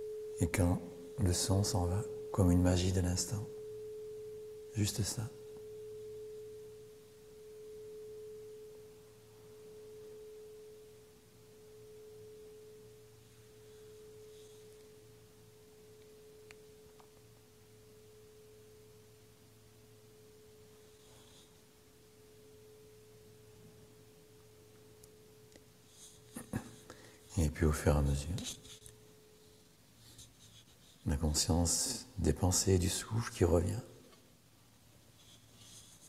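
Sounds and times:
singing bowl ringing: 0:00.0 - 0:33.9.

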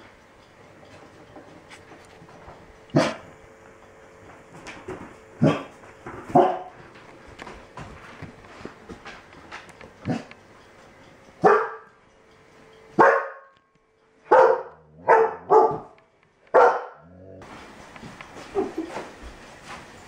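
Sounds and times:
dog barking: 0:02.9 - 0:03.3, 0:05.4 - 0:05.7, 0:06.3 - 0:06.8, 0:11.4 - 0:11.9, 0:13.0 - 0:13.6, 0:14.3 - 0:17.2.

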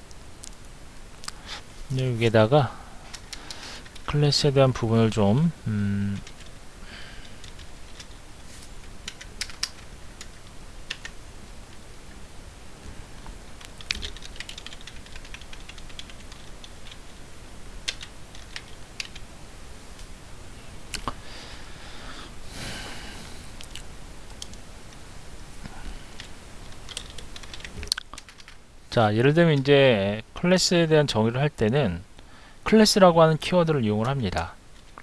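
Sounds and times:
computer keyboard typing: 0:06.2 - 0:06.5, 0:07.2 - 0:08.2, 0:09.0 - 0:11.2, 0:13.6 - 0:17.1, 0:17.8 - 0:19.2, 0:26.2 - 0:28.6.

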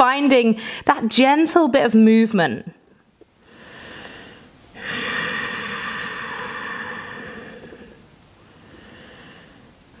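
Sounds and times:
person inhaling softly: 0:03.4 - 0:09.8
person exhaling: 0:03.5 - 0:09.8.

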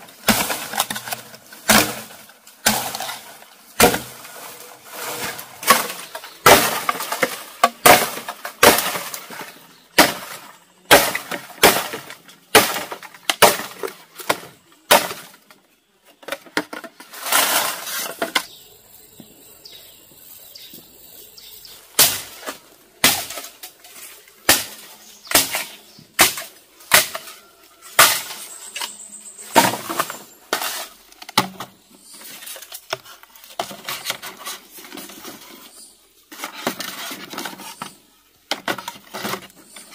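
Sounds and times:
bamboo being chopped: 0:00.1 - 0:15.5, 0:22.0 - 0:28.5, 0:29.6 - 0:31.8.

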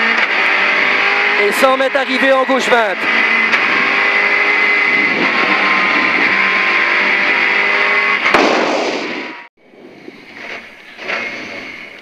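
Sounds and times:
car engine from inside cabin: 0:00.0 - 0:08.3
road noise: 0:00.0 - 0:12.0.

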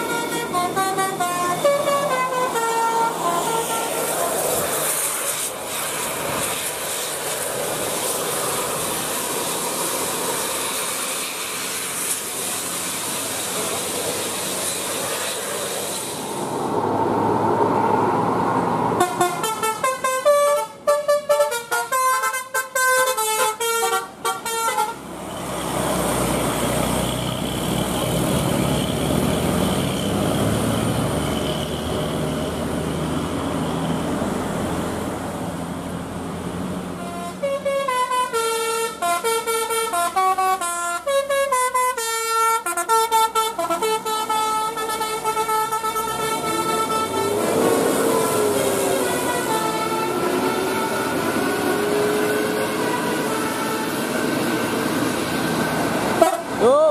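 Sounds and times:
musical bus air horn: 0:00.0 - 0:05.2, 0:19.0 - 0:25.1, 0:36.9 - 0:54.9, 0:56.1 - 0:56.7
bus engine and road noise: 0:00.0 - 0:56.9.

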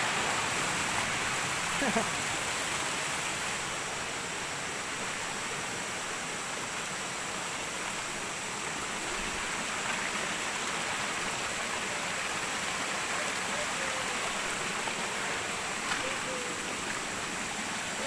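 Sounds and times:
stream rushing: 0:00.0 - 0:18.0.

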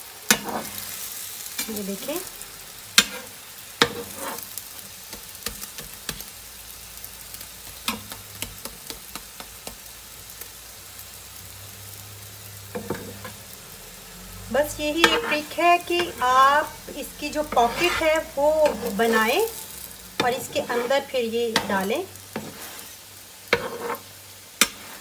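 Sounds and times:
paratha sizzling in a pan: 0:00.0 - 0:25.0
spatula clicking and scraping pan: 0:00.3 - 0:00.9, 0:02.9 - 0:06.3, 0:07.6 - 0:10.0, 0:12.7 - 0:13.5, 0:14.9 - 0:25.0.

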